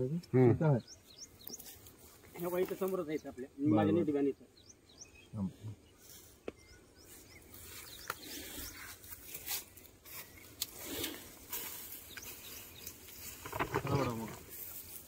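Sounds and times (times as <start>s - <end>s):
straw rustling under footsteps: 1.4s - 3.2s, 5.9s - 15.0s.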